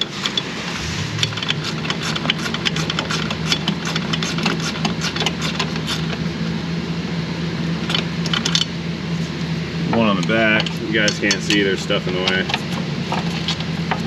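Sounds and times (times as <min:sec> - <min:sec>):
low hum: 0:00.0 - 0:04.1.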